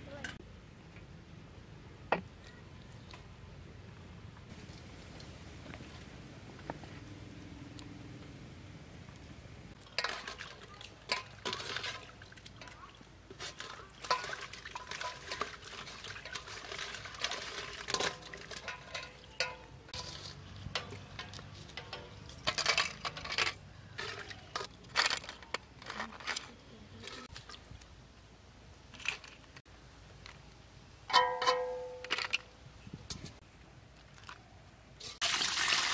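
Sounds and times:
water sloshing: 0:09.8 - 0:26.3.

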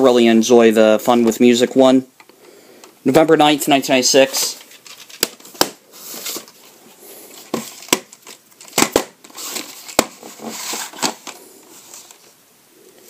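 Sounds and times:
rustling: 0:04.3 - 0:12.4.

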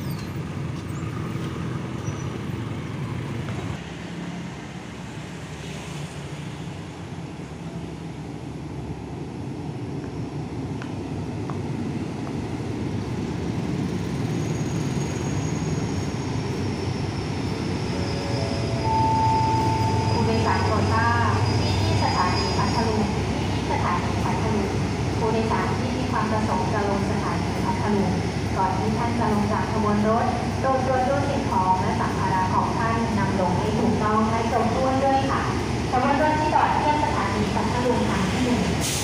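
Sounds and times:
diesel locomotive engine rumble: 0:00.0 - 0:39.0
faint high squeal: 0:14.3 - 0:23.1.

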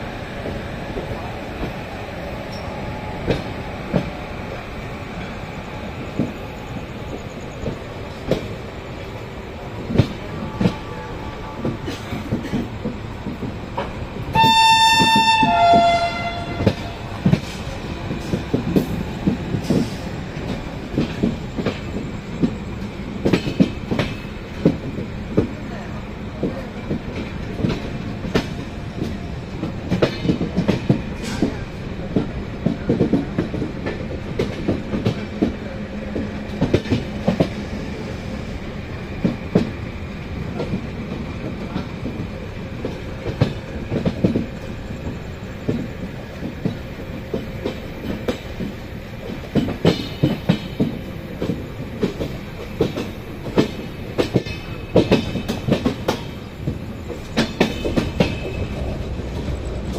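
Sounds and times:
train rumble: 0:00.0 - 0:59.9
train wheels clattering over rail joints: 0:11.6 - 0:25.6, 0:26.2 - 0:37.7, 0:39.1 - 0:59.9.

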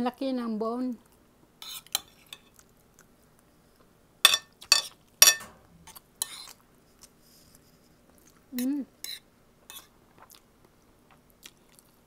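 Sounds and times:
cutlery clinking on a plate: 0:04.3 - 0:05.6.

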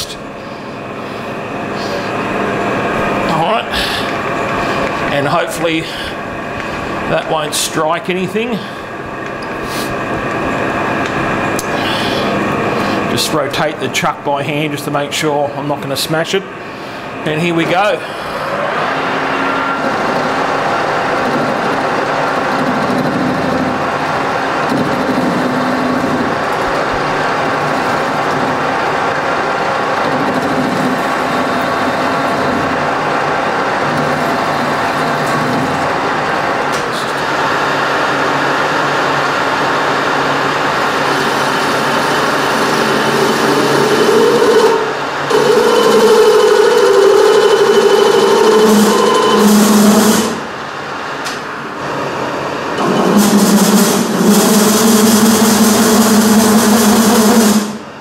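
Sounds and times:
metal lathe running: 0:00.3 - 0:15.5, 0:16.2 - 0:58.0
steady tone: 0:40.6 - 0:58.0.

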